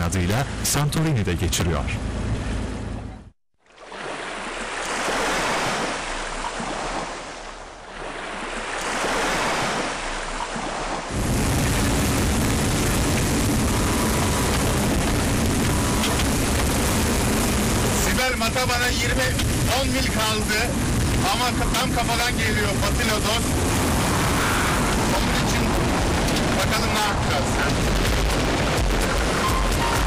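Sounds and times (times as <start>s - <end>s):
wind: 0.0s - 30.0s
rough sea waves surging: 3.7s - 30.0s
wind buffeting microphone: 11.1s - 30.0s.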